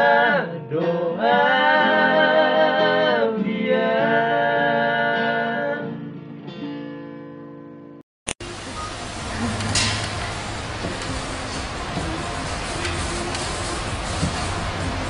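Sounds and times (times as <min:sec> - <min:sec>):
men singing together: 0:00.0 - 0:05.8
acoustic guitar: 0:00.0 - 0:15.0.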